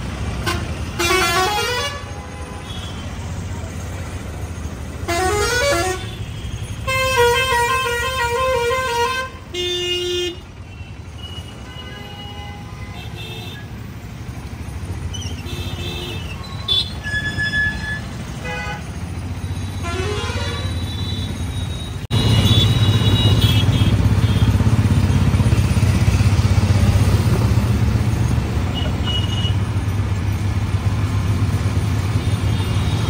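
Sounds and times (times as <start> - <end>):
low traffic rumble: 0.0 - 33.0
vehicle horns honking: 0.4 - 3.2, 5.0 - 13.8, 15.4 - 19.0, 19.6 - 25.3, 28.7 - 29.7.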